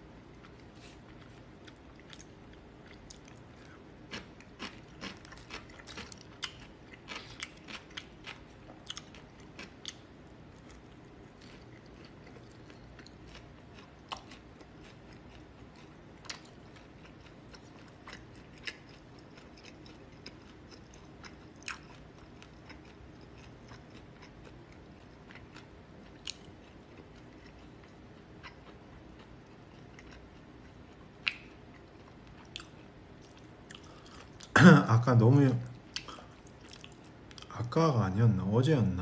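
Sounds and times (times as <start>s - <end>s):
low steady hum: 0.0s - 39.0s
person chewing: 0.3s - 34.5s, 35.7s - 37.5s.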